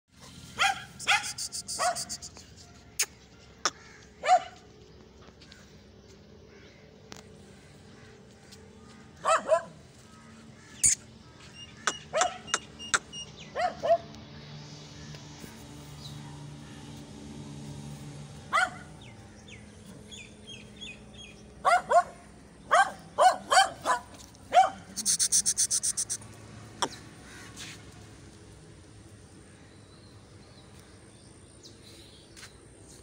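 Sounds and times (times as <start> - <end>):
high chirps: 25.0 - 26.2
short loud animal calls: 25.0 - 26.2.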